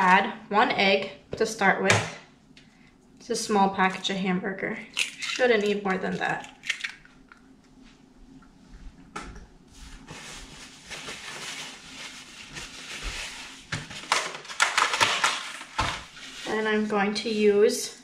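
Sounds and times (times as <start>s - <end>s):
paper towel rustling: 9.7s - 17.6s.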